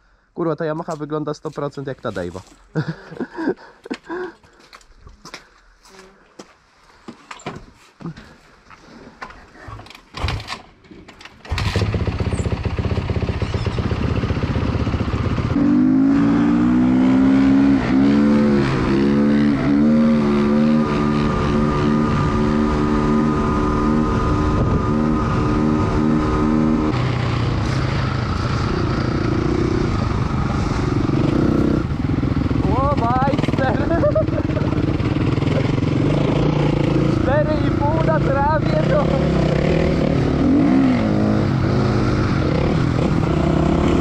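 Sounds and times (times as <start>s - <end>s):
dirt bike engines accelerating: 11.6s - 44.0s.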